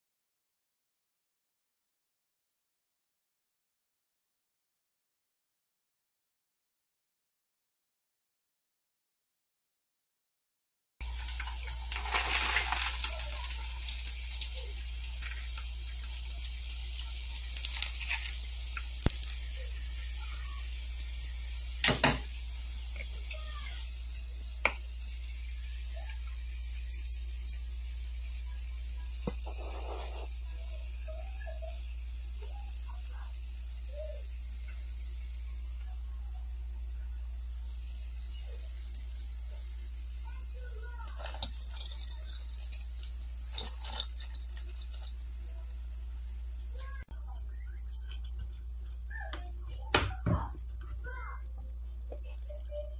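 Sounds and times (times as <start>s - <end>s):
hot oil sizzling in a pan: 11.0s - 52.9s.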